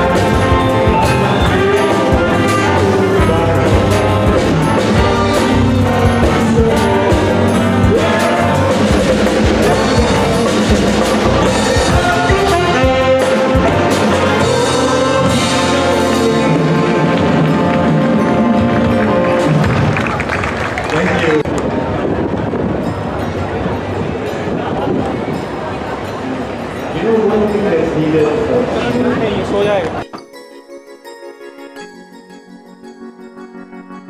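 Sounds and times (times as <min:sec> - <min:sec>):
big band playing: 0:00.0 - 0:21.5.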